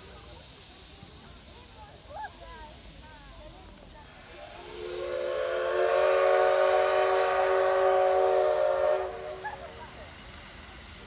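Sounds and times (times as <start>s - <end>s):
steam locomotive whistle: 4.1s - 11.0s.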